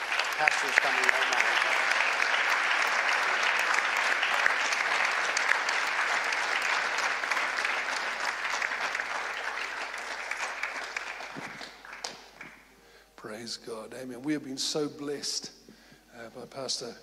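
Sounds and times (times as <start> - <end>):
crowd applauding: 0.0 - 12.8.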